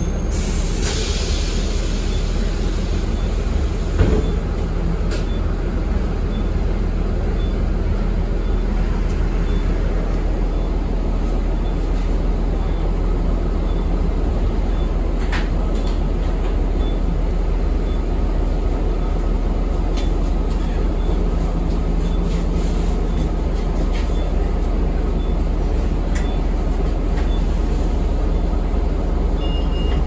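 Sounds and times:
bus engine and road rumble: 0.0 - 30.0.

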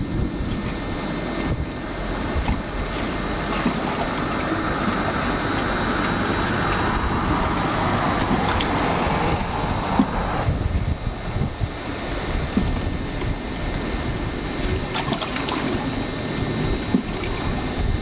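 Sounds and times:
wind buffeting microphone: 0.0 - 18.0
water washing on shore: 1.9 - 10.5.

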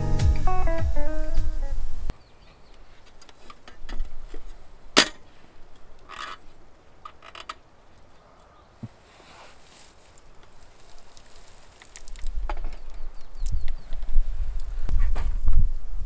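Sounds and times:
guitar music: 0.0 - 2.1.

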